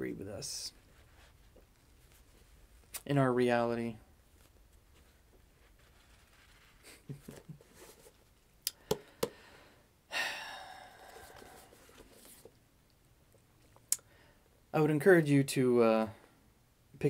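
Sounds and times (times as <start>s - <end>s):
man sighing: 8.7s - 11.9s.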